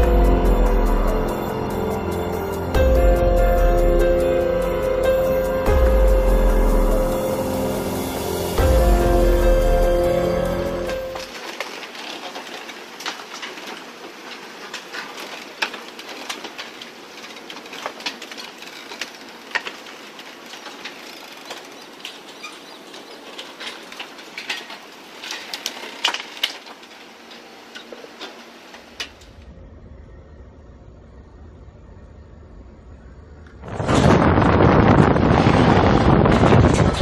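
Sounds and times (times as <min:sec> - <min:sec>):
low hum: 0:00.0 - 0:11.4, 0:29.1 - 0:37.0
steady scraping hiss: 0:06.3 - 0:33.1
hulls cracking and crunching: 0:07.1 - 0:29.4.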